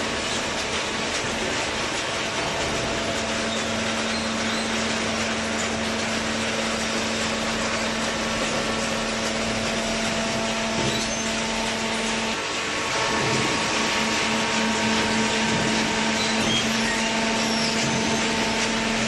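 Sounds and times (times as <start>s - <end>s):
baler machine running: 0.0s - 19.0s.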